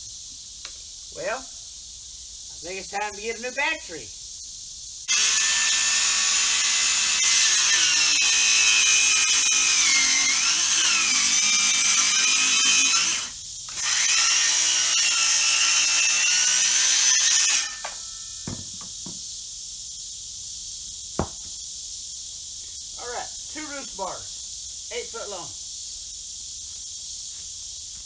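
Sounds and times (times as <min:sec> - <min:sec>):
circular saw cutting wood: 0:05.1 - 0:18.0
light knocks: 0:21.2 - 0:21.6.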